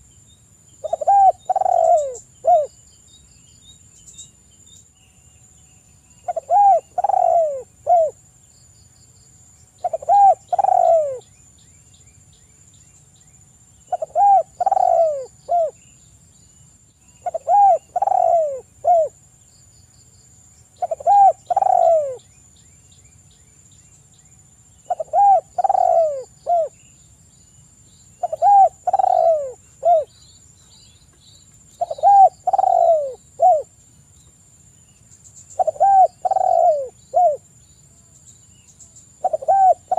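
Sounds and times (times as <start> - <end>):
dove cooing: 0.8 - 2.7, 6.2 - 8.2, 9.8 - 11.2, 13.9 - 15.8, 17.2 - 19.2, 20.8 - 22.2, 24.9 - 26.8, 28.2 - 30.1, 31.8 - 33.7, 35.6 - 37.4, 39.2 - 39.9.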